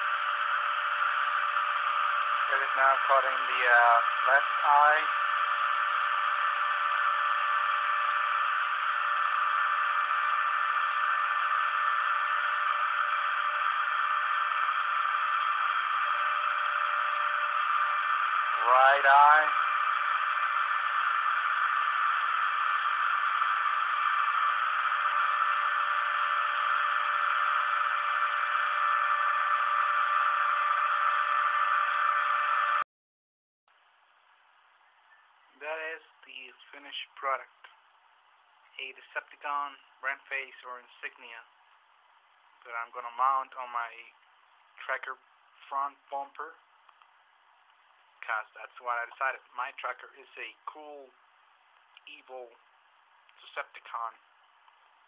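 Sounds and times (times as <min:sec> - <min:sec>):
cnc machine whining: 0:00.0 - 0:32.8.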